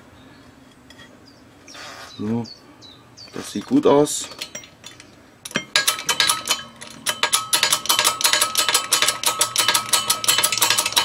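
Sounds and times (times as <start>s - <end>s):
rapid metallic clicking: 5.5s - 11.0s
ringing metal tone: 5.5s - 11.0s.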